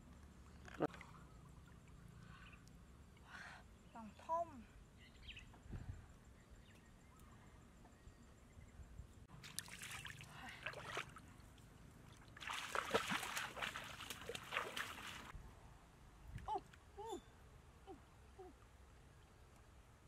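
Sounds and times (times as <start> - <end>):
water splashing and sloshing: 9.3 - 15.4.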